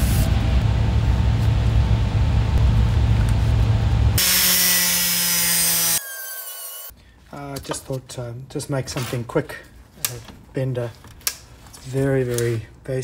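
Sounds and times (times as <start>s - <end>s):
low rumbling machine: 0.0s - 4.2s.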